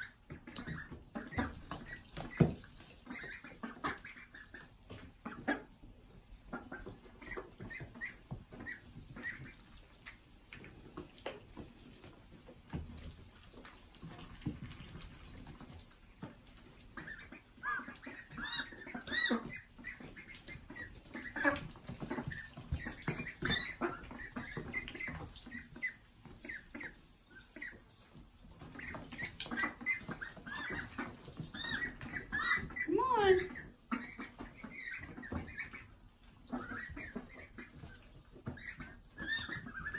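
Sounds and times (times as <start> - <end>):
ducklings peeping: 0.0 - 12.5, 13.4 - 39.9
pecking and scratching in wood shavings: 6.7 - 35.9.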